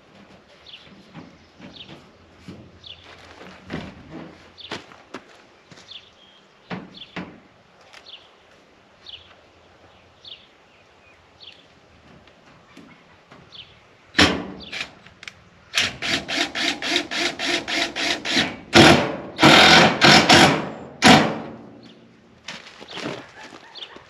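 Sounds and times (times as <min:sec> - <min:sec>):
power driver driving screws: 0:15.8 - 0:21.4.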